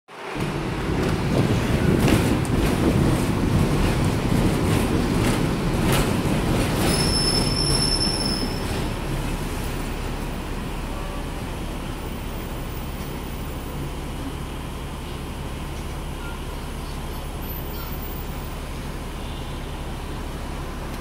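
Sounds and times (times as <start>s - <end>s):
tram wheels rumbling on track: 0.1s - 21.0s
sharp track clacks: 0.4s - 7.8s
metal wheel squeal: 6.7s - 8.9s.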